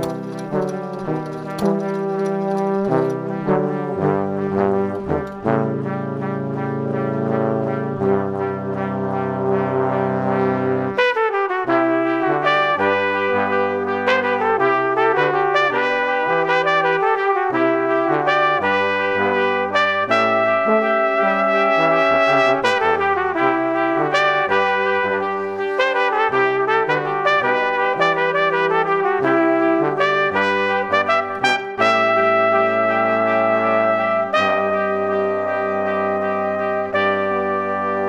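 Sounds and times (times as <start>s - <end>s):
brass instruments playing chords: 0.0s - 38.0s
moving bass line: 18.5s - 25.9s.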